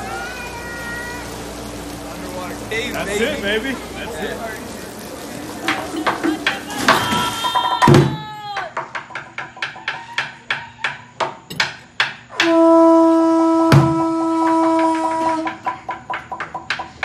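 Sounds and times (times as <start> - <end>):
person shouting: 6.7 - 8.8
horn long steady note: 12.4 - 15.6.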